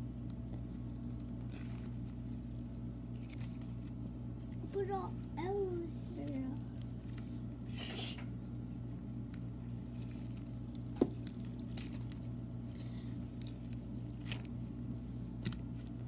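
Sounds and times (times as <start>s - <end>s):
steady low hum: 0.0s - 16.0s
slime squished by hand: 0.2s - 4.7s, 9.1s - 16.0s.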